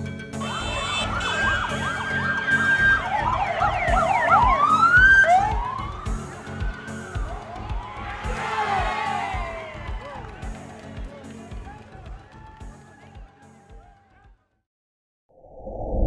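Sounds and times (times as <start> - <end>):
music with steady beat: 0.0 - 14.1
vehicle sirens wailing: 0.4 - 8.0.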